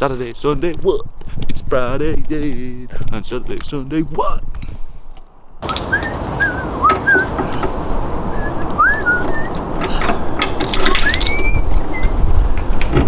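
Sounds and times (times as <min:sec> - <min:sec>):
whistled notes swooping: 0:05.6 - 0:09.7, 0:10.8 - 0:12.2
sharp metallic lock clicks: 0:09.8 - 0:11.6.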